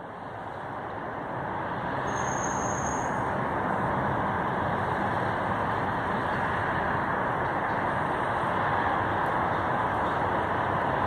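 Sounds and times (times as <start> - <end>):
diesel locomotive rumble: 0.0 - 11.0.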